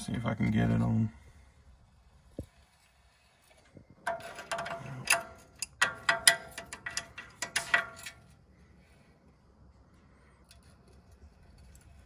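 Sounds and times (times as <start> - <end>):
wrench clicking on metal nut: 4.1 - 8.2.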